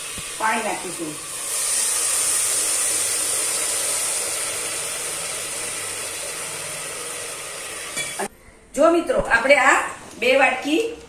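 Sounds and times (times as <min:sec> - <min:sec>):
water sizzling in hot fat: 0:00.0 - 0:08.3.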